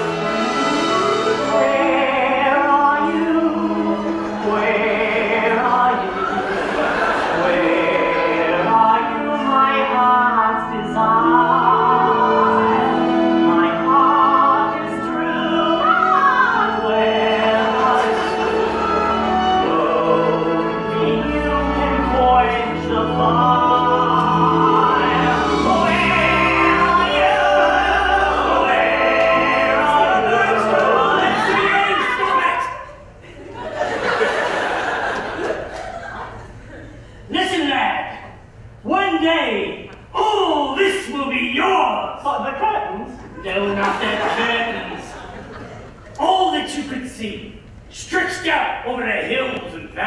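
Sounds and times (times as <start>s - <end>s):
instrumental accompaniment: 0.0s - 5.4s
person singing operatic ballad: 0.0s - 6.6s, 7.3s - 32.6s.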